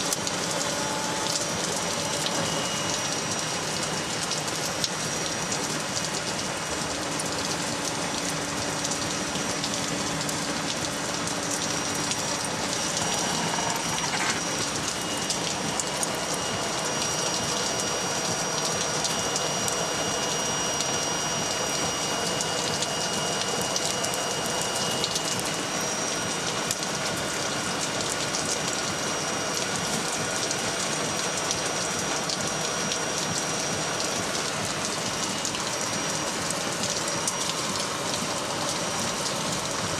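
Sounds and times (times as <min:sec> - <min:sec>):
coals crackling and popping: 0:08.9 - 0:17.8.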